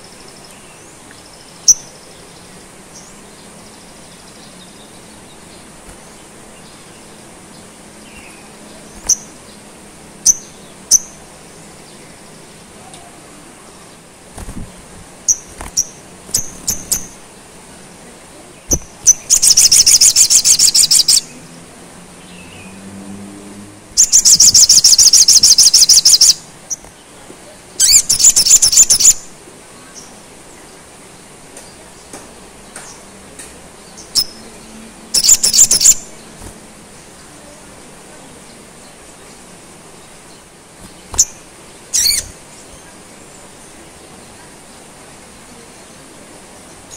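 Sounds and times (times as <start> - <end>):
bird singing with trills: 0.0 - 9.6, 10.2 - 11.2, 15.3 - 17.2, 18.6 - 21.5, 24.0 - 27.1, 27.8 - 29.3, 33.8 - 37.5, 40.0 - 43.0.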